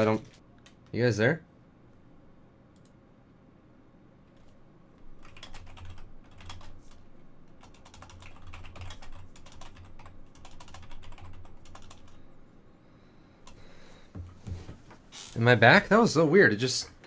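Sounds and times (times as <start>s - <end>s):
keyboard keystrokes clattering: 5.2s - 6.7s.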